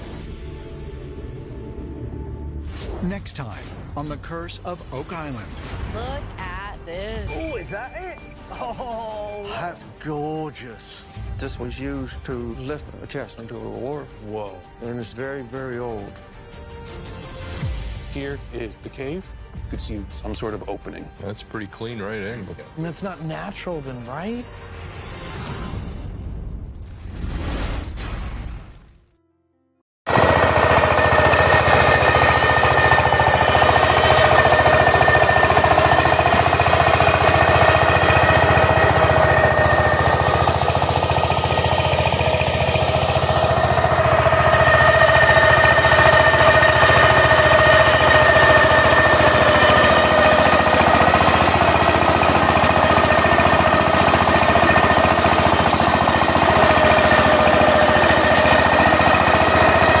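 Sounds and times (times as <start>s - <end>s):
diesel engine chugging: 30.1s - 60.0s.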